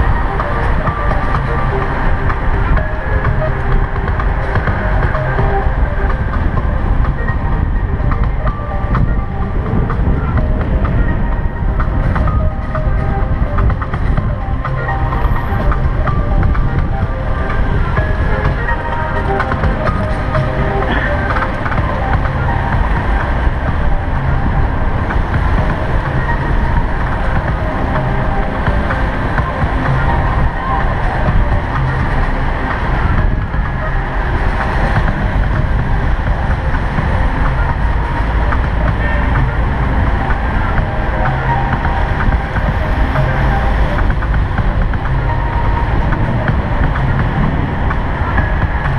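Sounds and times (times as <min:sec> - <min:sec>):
music with held notes: 0:00.0 - 0:48.9
wind and road rumble: 0:00.0 - 0:48.9.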